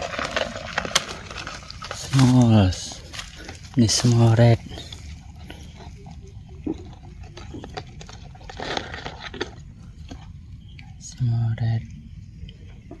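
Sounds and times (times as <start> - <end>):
metal tongs scraping soil and twigs: 0.0 - 6.1
low steady rumble: 0.0 - 13.0.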